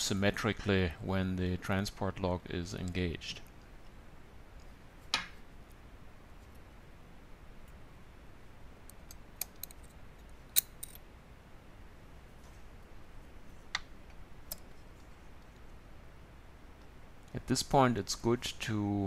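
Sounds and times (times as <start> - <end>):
faint low hum: 0.0 - 19.0
tweezers and metal parts clicking: 8.9 - 11.0.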